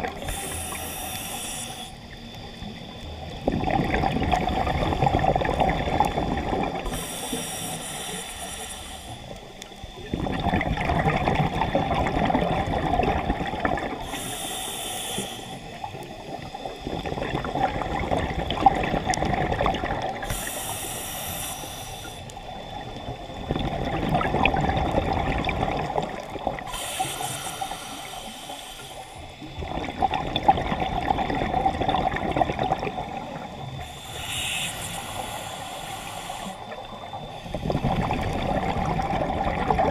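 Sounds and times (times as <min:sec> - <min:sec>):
regulator inhalation hiss: 0:00.0 - 0:03.4, 0:06.8 - 0:10.0, 0:13.8 - 0:17.1, 0:20.1 - 0:23.4, 0:26.1 - 0:29.7, 0:33.3 - 0:38.2
exhaled bubbles rushing: 0:02.2 - 0:07.1, 0:10.0 - 0:14.1, 0:15.8 - 0:20.4, 0:22.7 - 0:26.8, 0:29.4 - 0:34.5, 0:36.7 - 0:39.9.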